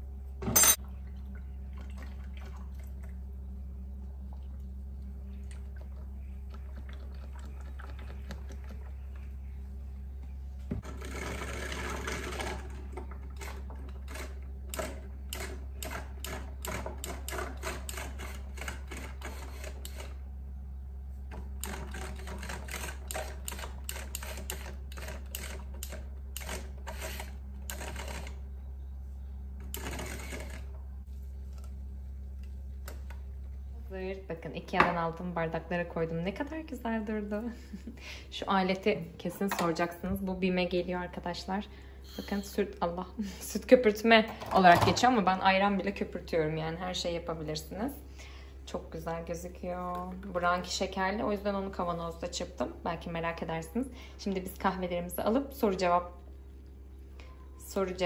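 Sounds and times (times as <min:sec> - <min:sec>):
milk frother motor running: 0:10.8 - 0:20.2, 0:21.3 - 0:28.9, 0:29.6 - 0:30.8.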